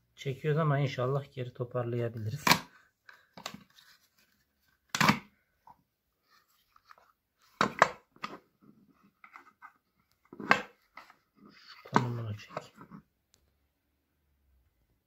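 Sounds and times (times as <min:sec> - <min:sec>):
plastic housing cracking: 0:04.9 - 0:05.3.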